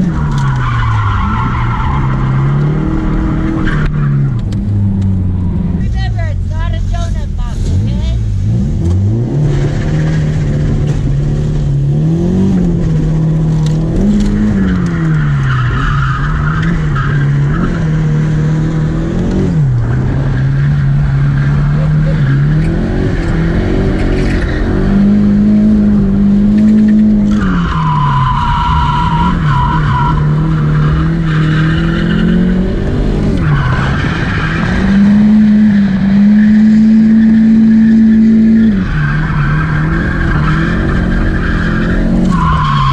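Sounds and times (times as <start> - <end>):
car engine revving: 0.0 - 42.9
tyres squealing: 37.1 - 42.9.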